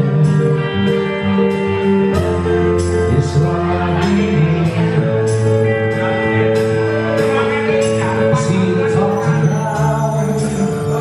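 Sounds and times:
bass guitar: 0.0 - 11.0
electric guitar: 0.0 - 11.0
keyboard: 0.0 - 11.0
person singing: 0.0 - 11.0.

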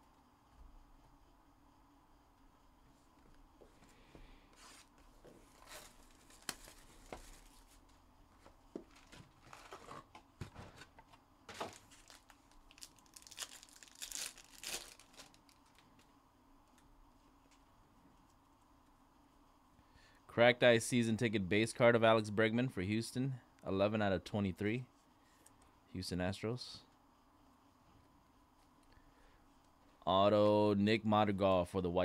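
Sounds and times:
wrappers crinkling and tearing: 11.5 - 16.0.

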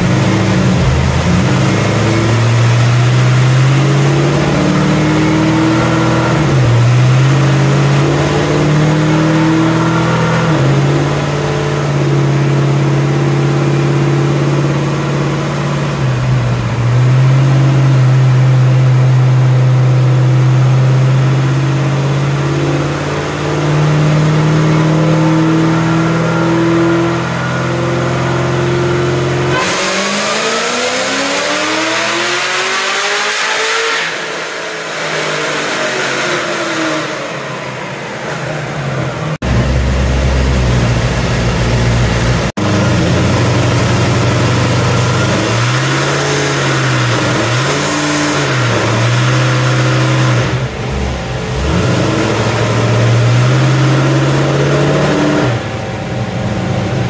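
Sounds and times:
vehicle engine running: 39.4 - 45.3.

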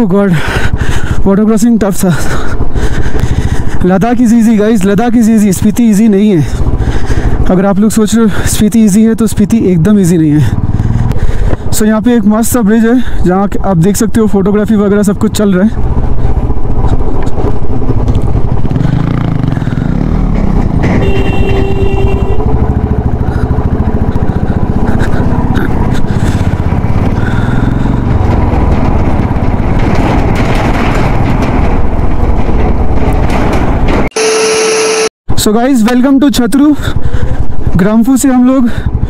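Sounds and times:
motorcycle engine running: 0.0 - 34.1, 36.8 - 39.0
wind rush and road noise: 0.0 - 34.1, 35.3 - 39.0
scattered knocks: 28.0 - 34.2
short steady tone: 34.1 - 35.1.

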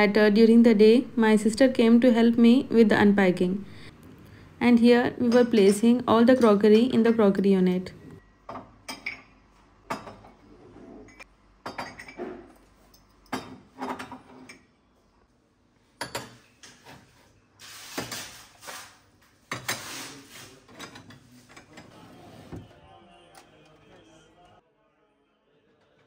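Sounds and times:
dishes and glassware clinking: 8.4 - 14.8, 16.0 - 17.0, 20.7 - 22.0.

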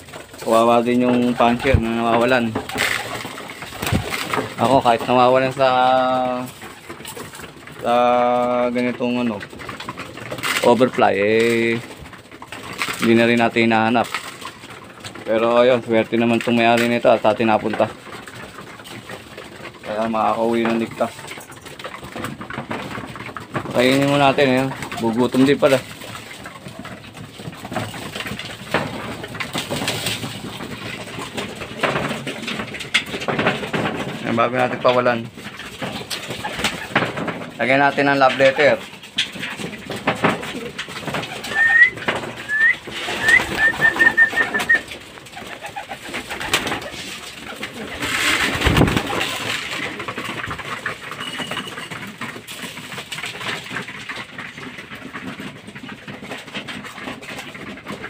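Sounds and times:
pigeons cooing: 0.0 - 33.7, 35.1 - 52.5
pigeons pecking and scuffling: 0.0 - 58.0
wing flaps: 1.1 - 5.1, 39.4 - 50.6.

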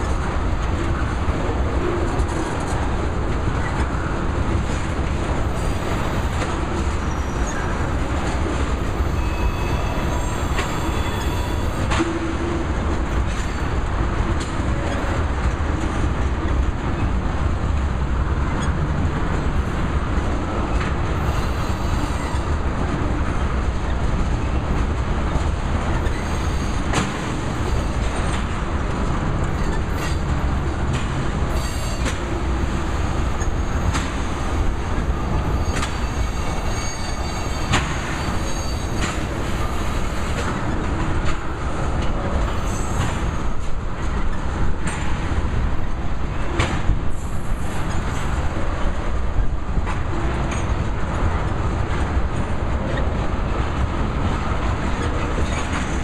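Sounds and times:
train clanks and clicks: 0.0 - 56.0
train wheels rumbling on rail: 0.0 - 56.0
high wheel squeals: 9.0 - 11.9, 35.5 - 40.2.

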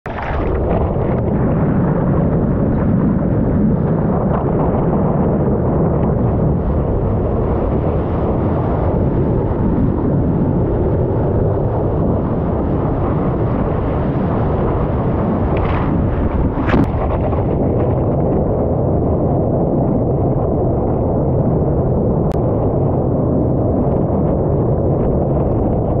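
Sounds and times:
breaking whitewater: 0.0 - 1.9
wind buffeting microphone: 0.0 - 26.0.

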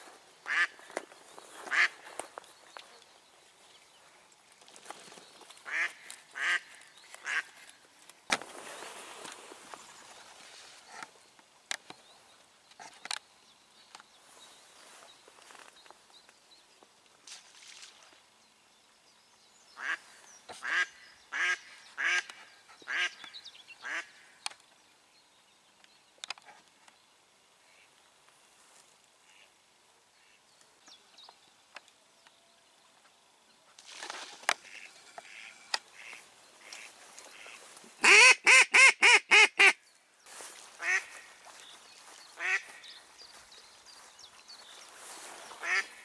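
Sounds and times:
soft rustling: 6.8 - 11.2
duck quacking: 45.6 - 45.9.

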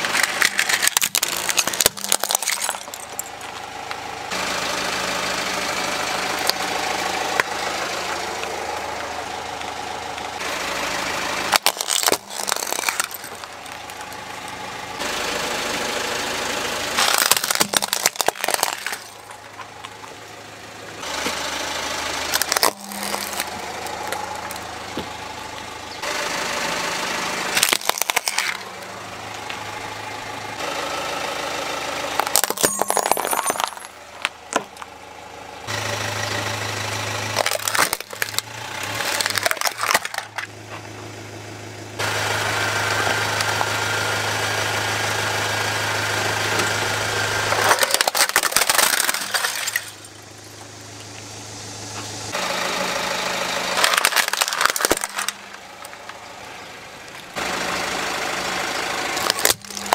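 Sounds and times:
plastic toys cracking and crunching: 0.0 - 4.0, 11.4 - 14.6, 17.0 - 20.2, 22.2 - 25.1, 27.5 - 28.9, 32.1 - 34.9, 37.2 - 40.6, 47.4 - 50.2, 53.7 - 56.2, 59.1 - 59.9
car engine idling: 0.0 - 59.9.

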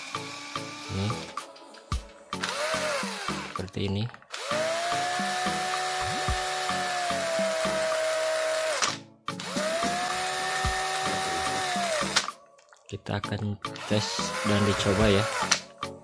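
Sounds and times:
electric drill whining: 0.0 - 1.5, 2.4 - 3.6, 4.3 - 12.3, 13.8 - 15.7.

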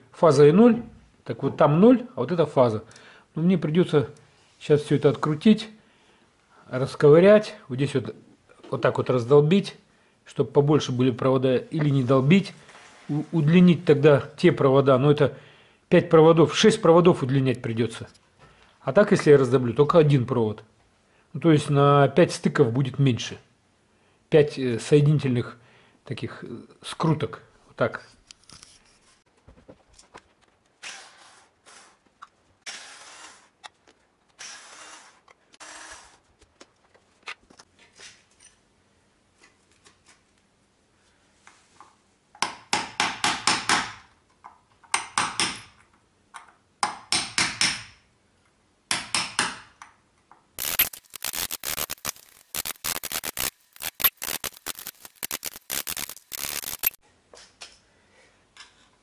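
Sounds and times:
hammer striking chisel: 42.4 - 44.1, 44.9 - 45.7, 46.8 - 48.0, 48.9 - 49.8.

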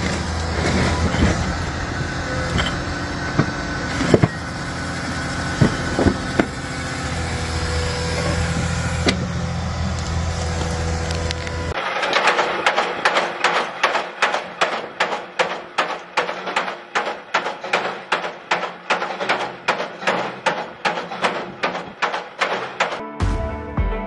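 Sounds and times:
mechanical press striking: 11.7 - 23.0.

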